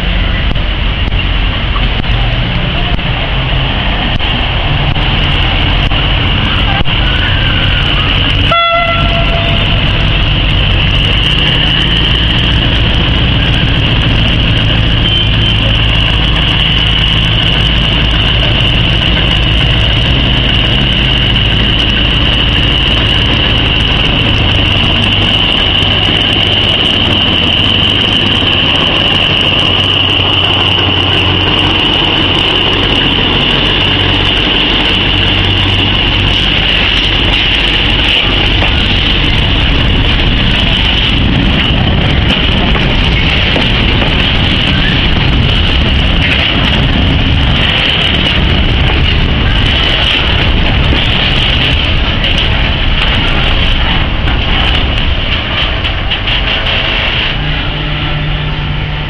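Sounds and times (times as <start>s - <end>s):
diesel train rumbling past: 0.0s - 59.0s
train horn toot: 7.0s - 9.8s.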